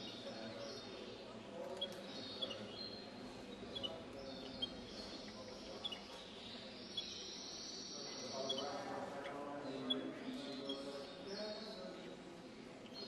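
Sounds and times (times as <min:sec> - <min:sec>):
background murmur: 0:00.0 - 0:13.0
finches chirping: 0:01.8 - 0:03.0, 0:03.7 - 0:08.8.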